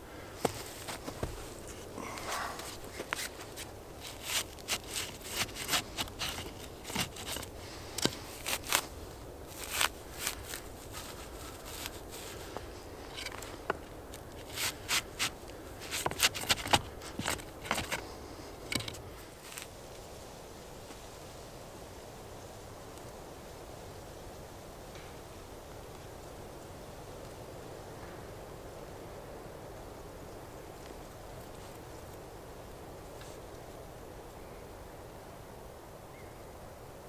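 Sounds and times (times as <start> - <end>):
wood shavings rustling: 0.1 - 19.8.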